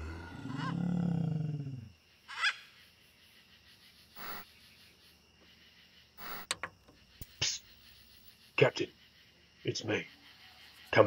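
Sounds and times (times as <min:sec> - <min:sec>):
sharp glitch clicks: 0:04.2 - 0:04.4, 0:06.2 - 0:06.5.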